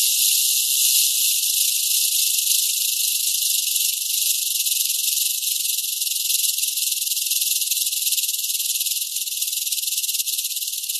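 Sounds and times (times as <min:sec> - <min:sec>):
rattlesnake tail rattling: 0:00.0 - 0:06.4.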